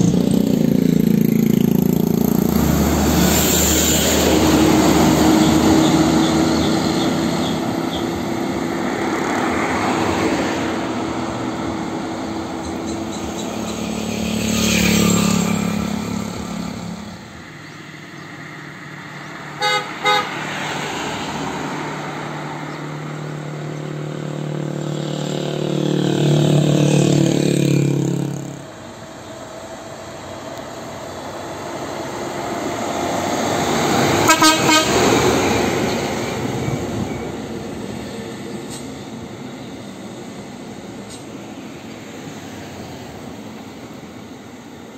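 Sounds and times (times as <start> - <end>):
bus and trucks driving past: 0.0 - 44.9
horn toots: 19.6 - 20.4, 34.0 - 35.4.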